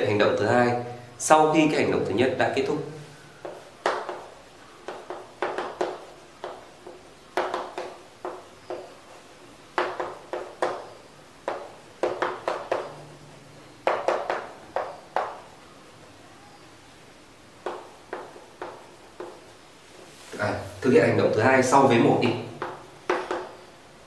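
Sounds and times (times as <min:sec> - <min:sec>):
chalk tapping and scratching: 0:03.4 - 0:13.0, 0:13.8 - 0:15.4, 0:17.6 - 0:20.4, 0:22.2 - 0:23.6.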